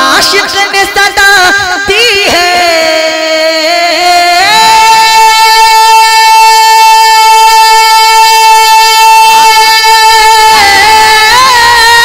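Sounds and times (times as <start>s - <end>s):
man singing a long high note: 2.4s - 12.0s.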